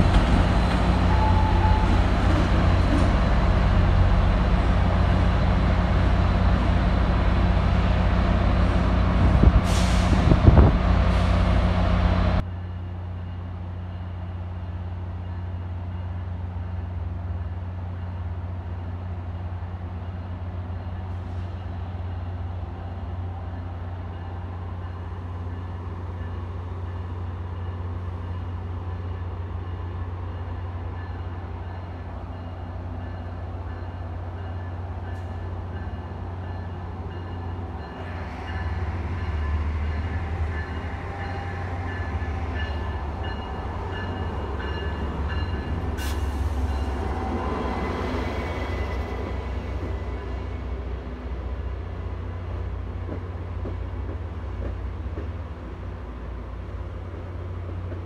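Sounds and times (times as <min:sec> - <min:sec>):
wheels squealing on rail: 0:00.0 - 0:03.1
train rolling rumble: 0:00.0 - 0:58.0.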